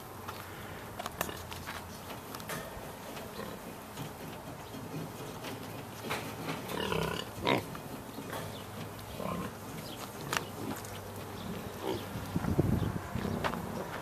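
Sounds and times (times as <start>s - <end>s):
pig grunting: 6.5s - 12.2s.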